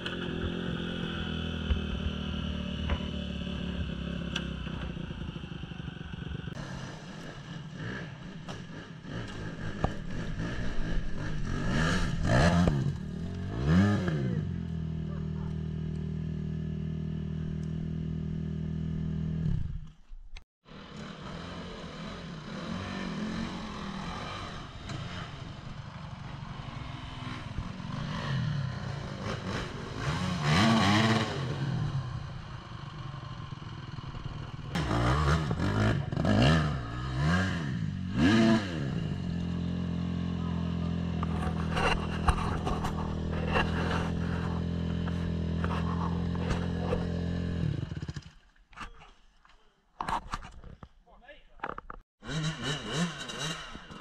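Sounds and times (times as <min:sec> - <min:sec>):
dirt bike engine idling: 0:00.0 - 0:13.7, 0:31.0 - 0:36.2
dirt bikes revving: 0:00.0 - 0:19.4, 0:20.7 - 0:48.4, 0:52.2 - 0:54.0.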